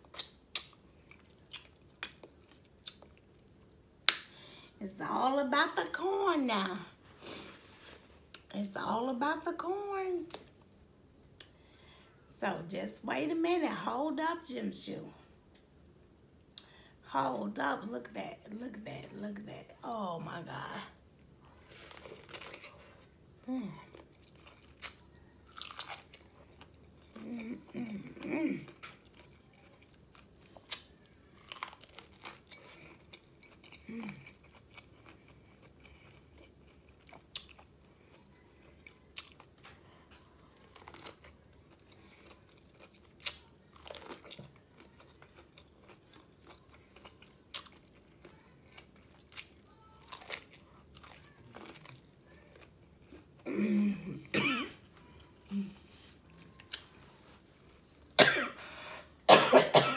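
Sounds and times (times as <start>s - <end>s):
chewing corn on the cob: 0.0s - 4.2s, 23.7s - 53.5s
person coughing: 53.5s - 54.8s, 58.2s - 59.9s.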